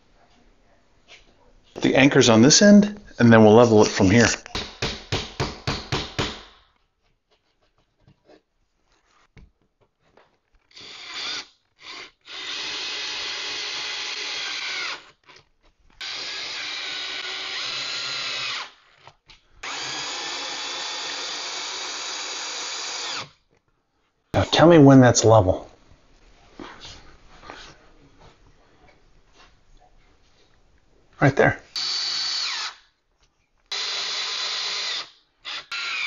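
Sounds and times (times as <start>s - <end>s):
hammer tapping: 4.5s - 6.5s
cordless drill driving: 10.7s - 15.2s, 16.0s - 19.0s, 19.6s - 23.4s, 31.8s - 32.8s, 33.7s - 36.0s.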